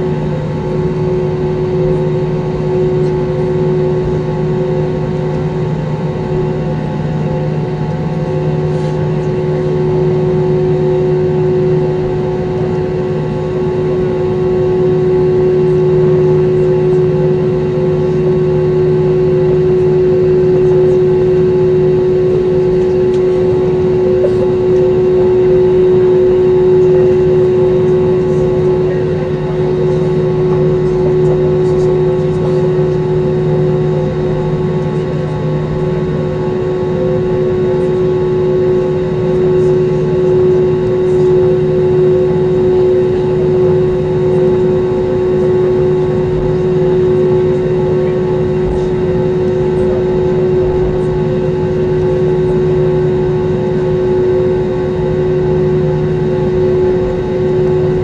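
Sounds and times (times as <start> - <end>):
jet engines droning in cabin: 0.0 - 58.0.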